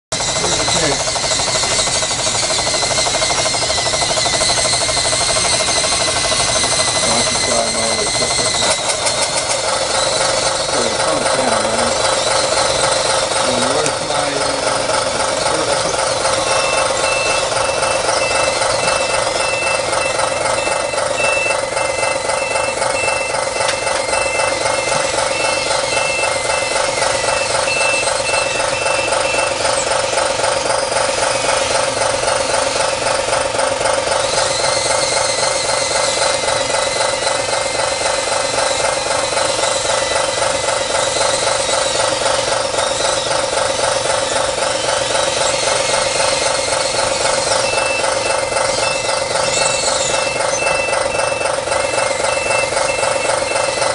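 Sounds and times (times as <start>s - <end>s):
model engines running: 0.1s - 53.9s
backup alarm beeping: 0.2s - 32.7s, 45.3s - 53.9s.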